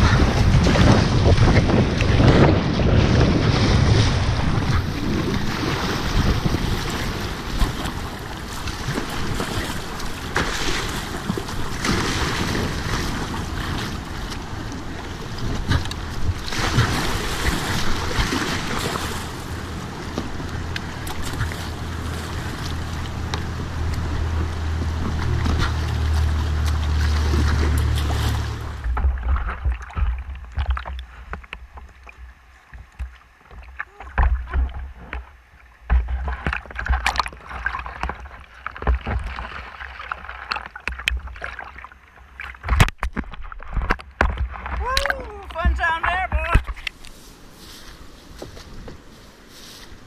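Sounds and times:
wind buffeting microphone: 0.0s - 29.2s
paddle strokes splashing: 0.0s - 50.0s.

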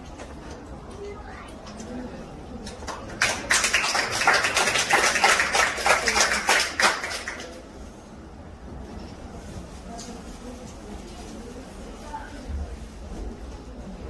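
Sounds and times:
small crowd clapping: 2.6s - 7.8s.

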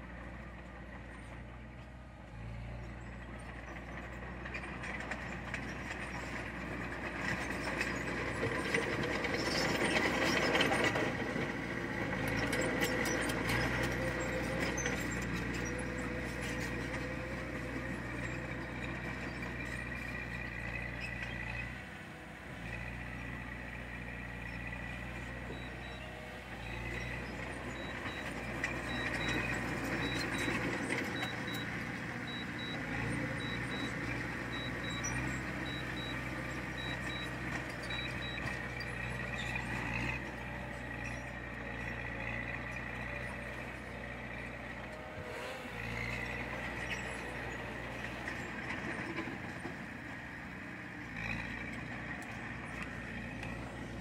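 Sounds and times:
heavy diesel machinery running: 0.0s - 54.0s
faint high-pitched beep: 25.5s - 26.1s, 32.3s - 38.6s.

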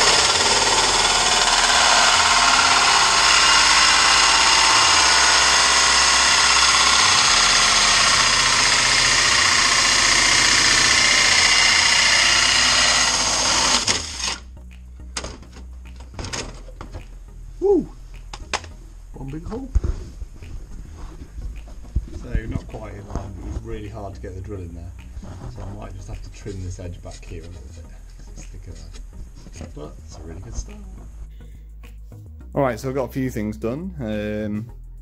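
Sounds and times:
cordless drill running: 0.0s - 14.4s.

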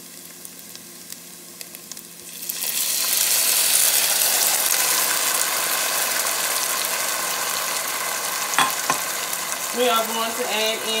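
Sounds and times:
loud sizzle in hot oil: 0.0s - 11.0s
tomatoes poured into hot pot: 8.6s - 9.3s
faint popping from pan: 8.6s - 9.4s.

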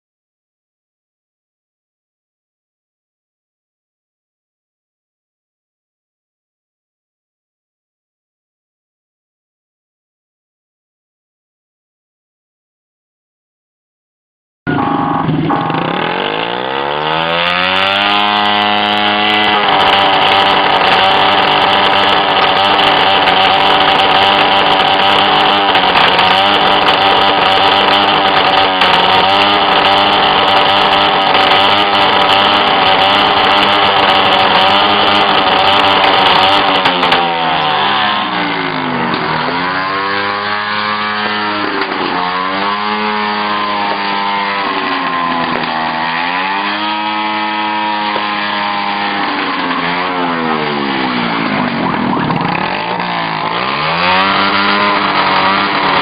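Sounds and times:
motorcycle engine revving: 14.7s - 56.0s.

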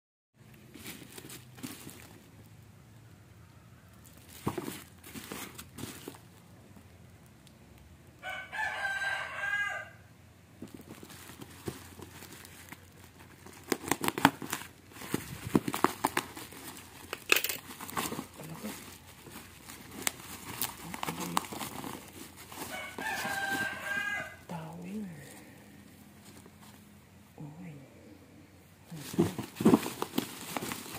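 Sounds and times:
plastic mailer crinkling and tearing: 4.0s - 6.5s, 10.6s - 24.3s, 28.9s - 30.9s
rooster crowing: 8.2s - 10.1s, 22.6s - 24.6s.

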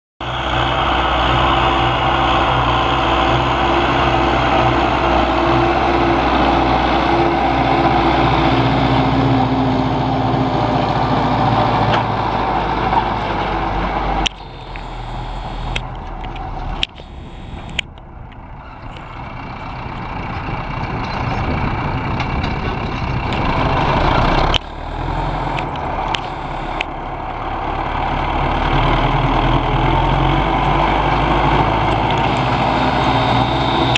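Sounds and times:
tractor diesel engine under load: 0.2s - 33.9s.

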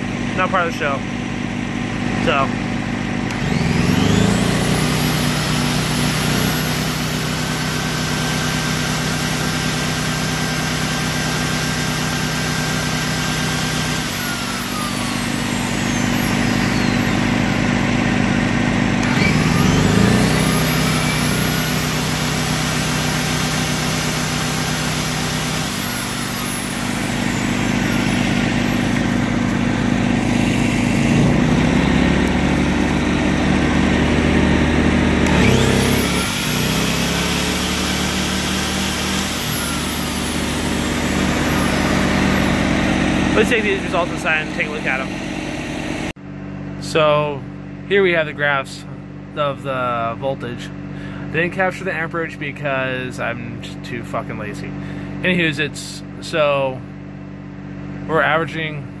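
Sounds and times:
generator engine revving under load: 0.0s - 59.0s
generator running steadily: 0.0s - 59.0s
electric motor whine: 1.3s - 46.2s.

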